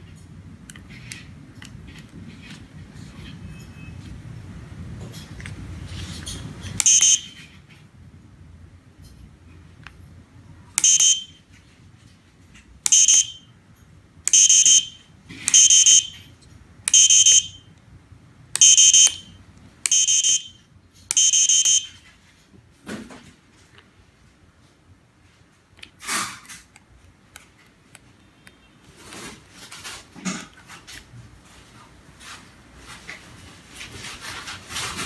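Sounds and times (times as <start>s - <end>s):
electronic buzzer beeps: 6.8s - 7.4s, 10.8s - 11.4s, 12.9s - 13.4s, 14.3s - 16.2s, 16.9s - 17.6s, 18.6s - 19.3s, 19.9s - 22.0s.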